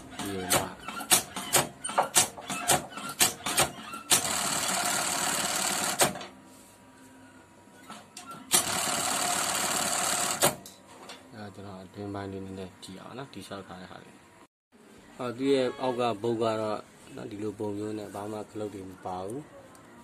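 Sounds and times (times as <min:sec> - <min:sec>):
sewing machine stitching: 0:00.0 - 0:06.2, 0:08.4 - 0:10.6
sewing machine sharp clicks: 0:00.5 - 0:06.2.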